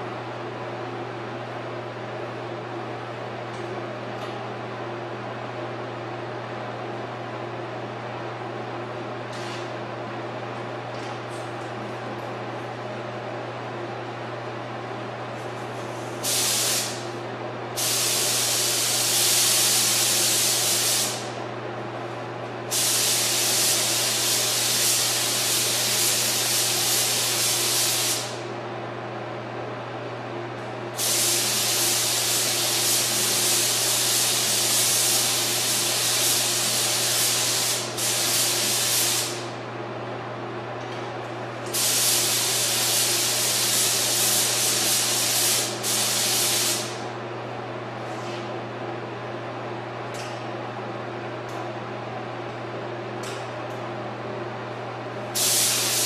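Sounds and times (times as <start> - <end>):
spray gun hissing: 16.2 - 17.0, 17.8 - 21.3, 22.7 - 28.4, 31.0 - 39.5, 41.7 - 47.0, 55.4 - 56.0.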